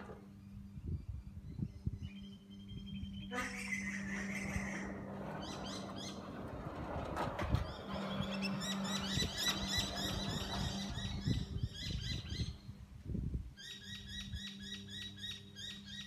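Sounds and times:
sliding gate motor hum: 0.0 - 0.4, 2.4 - 12.9
gate rumbling along track: 3.4 - 12.6.

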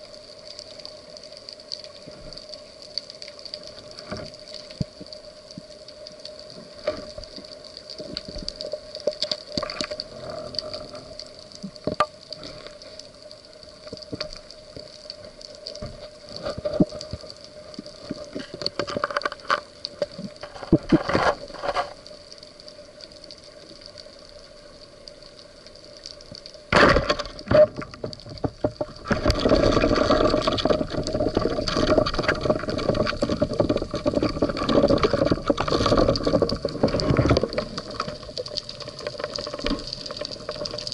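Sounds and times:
faint steady hum: 0.0 - 40.9
underwater clicks and crackles: 0.0 - 40.9
rush of moving water: 13.7 - 40.9.

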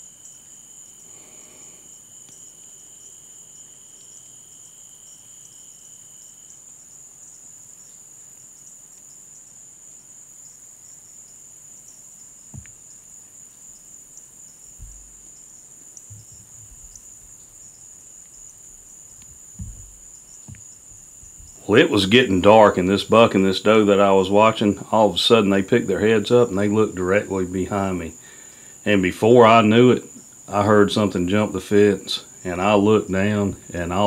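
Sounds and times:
high-pitched insect chorus: 0.0 - 34.0
lower insect trill: 0.0 - 34.0
faint low thumps and clicks: 14.8 - 15.4, 16.0 - 17.5, 19.1 - 21.6.

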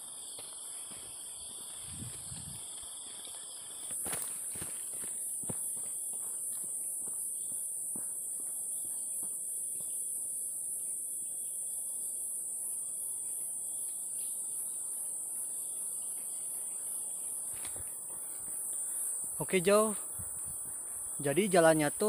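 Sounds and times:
footsteps on dirt trail: 0.0 - 10.0, 16.0 - 21.2
insects buzzing: 0.0 - 22.0.

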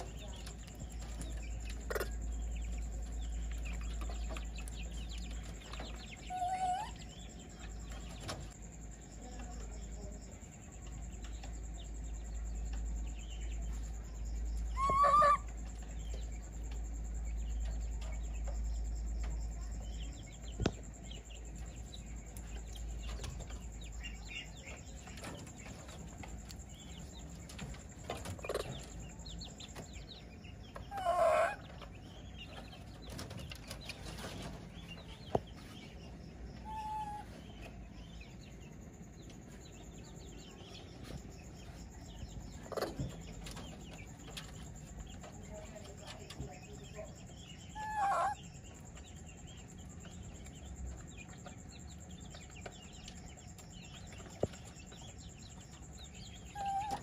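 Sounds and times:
chickens clucking: 0.0 - 57.0.

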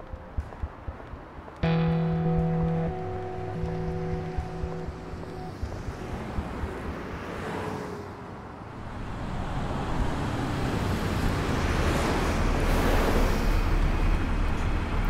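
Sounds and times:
road traffic: 0.0 - 15.0
bus passing: 5.6 - 15.0.

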